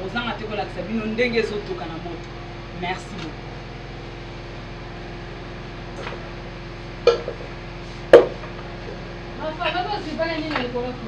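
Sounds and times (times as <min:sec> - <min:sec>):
steady background hum: 0:00.0 - 0:11.0
pot lid clanking: 0:07.1 - 0:07.4.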